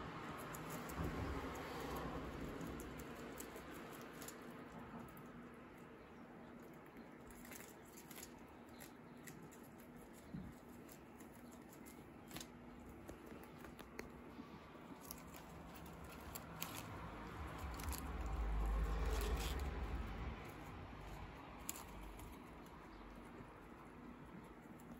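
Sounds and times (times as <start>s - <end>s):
guinea pigs chewing lettuce: 0.0s - 24.9s.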